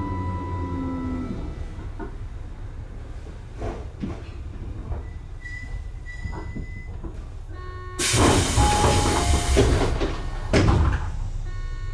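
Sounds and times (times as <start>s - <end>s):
air release hiss: 8.0s - 9.9s.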